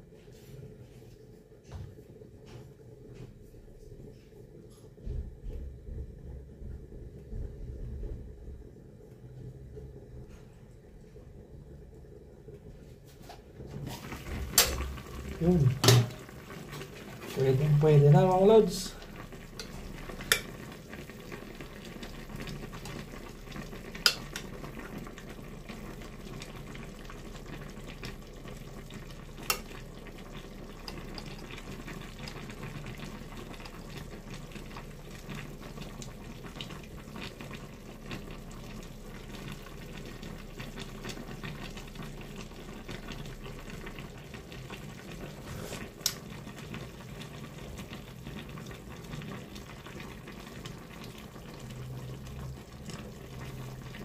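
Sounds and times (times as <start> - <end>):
stew bubbling on burner: 13.5 - 54.0.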